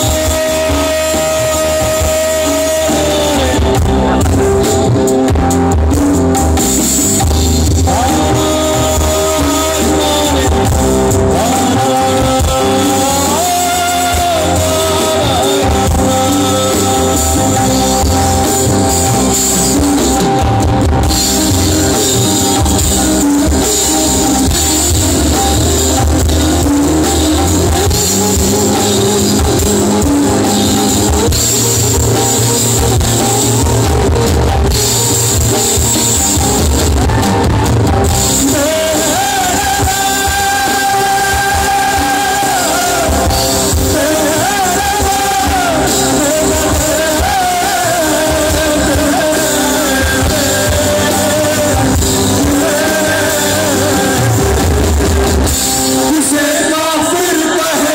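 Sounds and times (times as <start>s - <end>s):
person singing: 0.0s - 57.9s
rock band playing: 0.0s - 57.9s.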